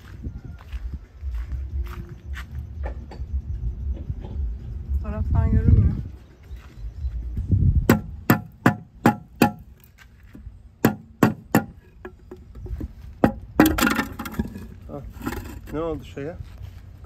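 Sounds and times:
sharp metallic knocks: 7.9s - 9.8s, 10.8s - 14.7s.

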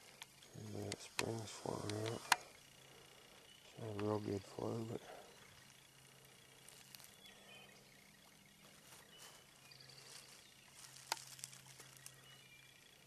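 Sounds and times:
faint bird chirps: 0.0s - 13.0s
faint low hum: 0.0s - 13.0s
sharp click: 0.2s - 2.5s.

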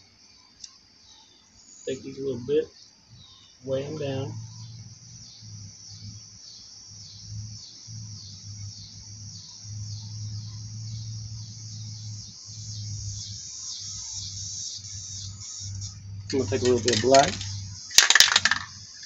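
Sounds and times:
low steady hum: 0.0s - 19.0s.

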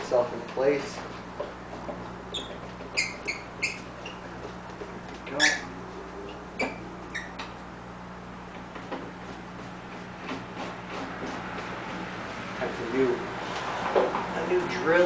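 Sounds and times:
steady low hum: 0.0s - 15.0s
short high-pitched squeaks: 2.3s - 4.3s, 5.3s - 7.5s.

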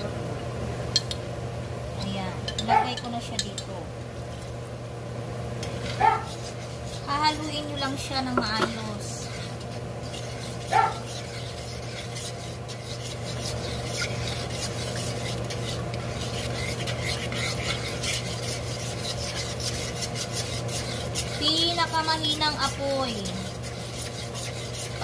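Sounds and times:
steady low hum: 0.0s - 25.0s
spoon scraping a pan: 5.6s - 25.0s.

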